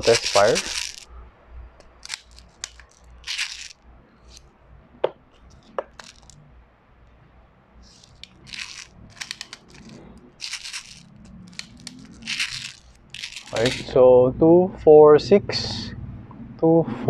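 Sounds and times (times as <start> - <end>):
plastic bbs clicking into magazine: 0.0 - 1.0, 1.8 - 3.8, 5.5 - 6.4, 7.9 - 13.9.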